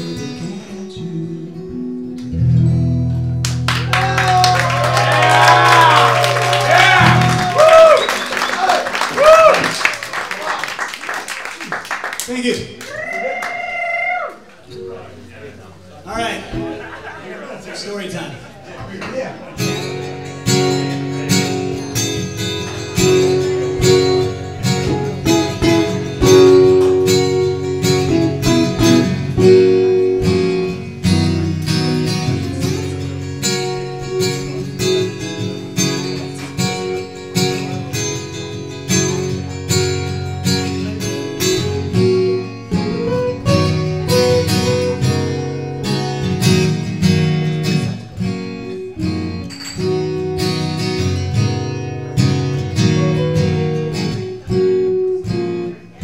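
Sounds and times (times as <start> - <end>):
acoustic guitar playing: 0.0 - 9.8, 14.4 - 56.0.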